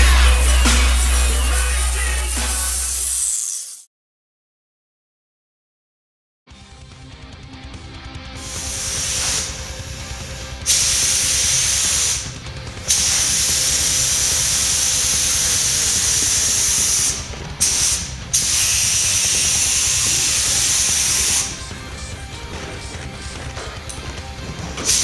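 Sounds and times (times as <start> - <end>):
paint spray gun hissing: 0.0 - 3.9, 8.4 - 21.9, 24.8 - 25.0.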